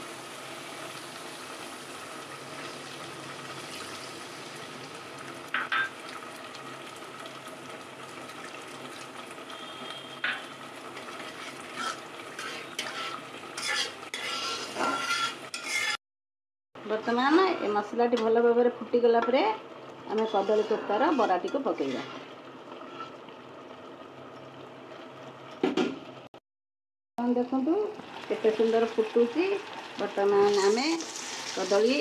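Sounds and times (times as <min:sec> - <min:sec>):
masala sizzling in oil: 0:00.0 - 0:16.0, 0:17.0 - 0:25.6, 0:27.4 - 0:32.0
metal spatula scraping pan: 0:11.0 - 0:16.0, 0:20.1 - 0:23.2.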